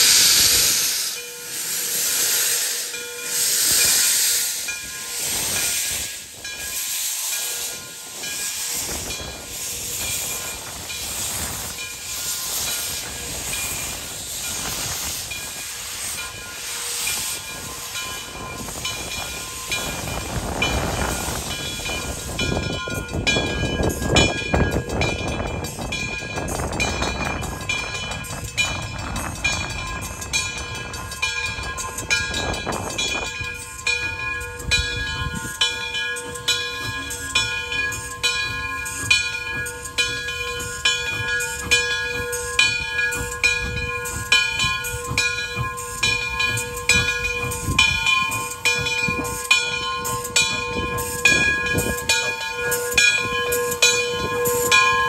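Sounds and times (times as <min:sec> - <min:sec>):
bell ringing steadily: 0:00.0 - 0:55.0
steam hissing: 0:00.0 - 0:55.0
steam locomotive rolling slowly: 0:00.0 - 0:55.0.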